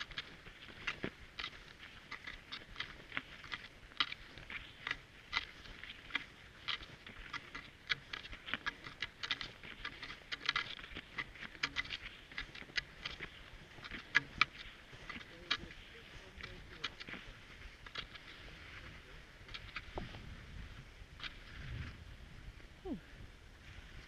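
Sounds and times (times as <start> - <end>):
skis and poles crunching on snow: 0.0 - 24.0.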